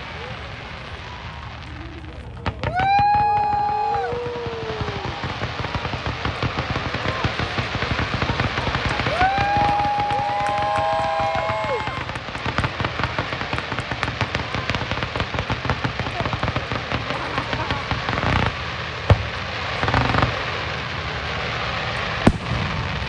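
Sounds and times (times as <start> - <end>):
fireworks bangs: 0.0 - 23.0
fireworks crackling: 0.0 - 23.0
fireworks whistling: 0.0 - 23.0.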